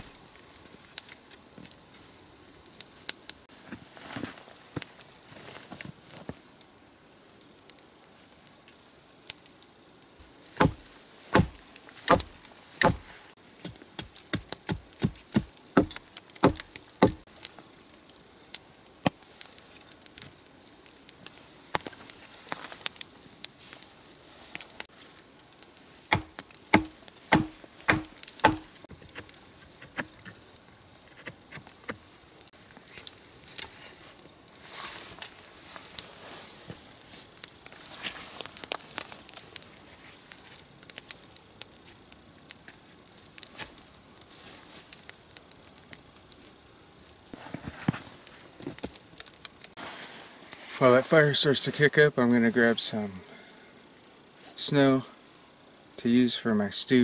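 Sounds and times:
light wood cracks: 0.0 - 2.1, 10.2 - 49.8
blade chopping branches: 10.6 - 17.2, 26.1 - 29.3.

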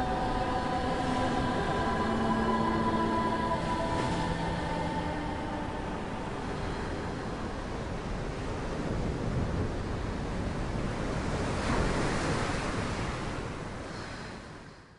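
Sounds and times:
wave breaking: 0.0 - 14.2
ocean surf on beach: 0.0 - 14.9.

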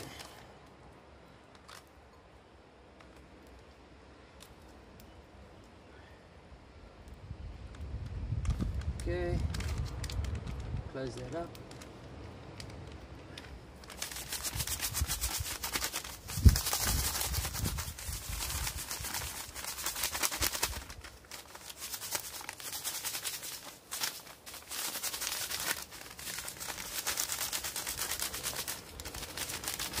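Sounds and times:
plastic packet crinkling: 9.4 - 13.0, 13.8 - 30.0.

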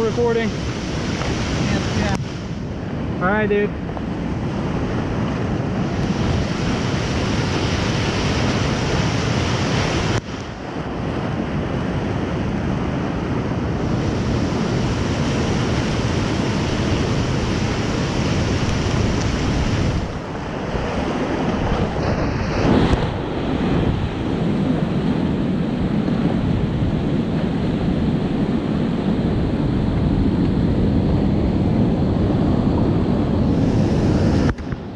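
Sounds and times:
rapids rushing: 0.0 - 3.8, 4.5 - 11.0
water splashing over kayak: 0.1 - 2.6, 4.4 - 12.9, 13.6 - 29.1.

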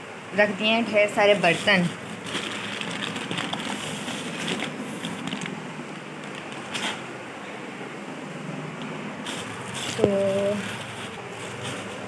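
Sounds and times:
plastic bag rustling: 1.2 - 7.1, 9.2 - 12.0.

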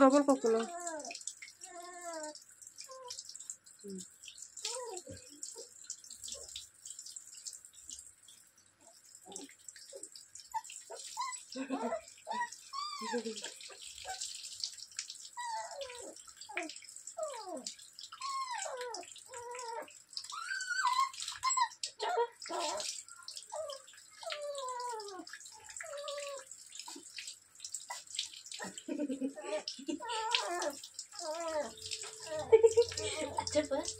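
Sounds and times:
water running from tap: 0.0 - 33.9
puppy whining and yelping: 0.6 - 3.2, 4.6 - 5.7, 9.3 - 14.3, 15.4 - 27.0, 27.9 - 33.5.

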